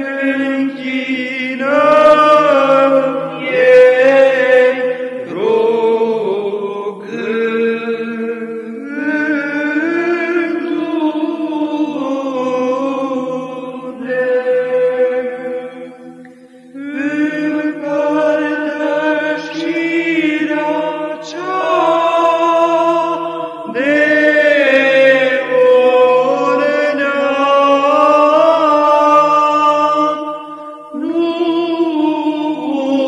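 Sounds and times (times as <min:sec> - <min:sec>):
low held vocal drone: 0:00.0 - 0:33.0
male choir chanting melody: 0:00.0 - 0:33.0.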